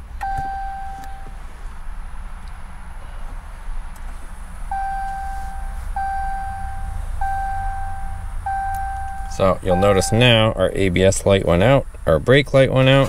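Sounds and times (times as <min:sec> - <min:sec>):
low steady rumble: 0:00.0 - 0:13.0
dashboard chime tone: 0:00.2 - 0:01.3, 0:04.8 - 0:10.5.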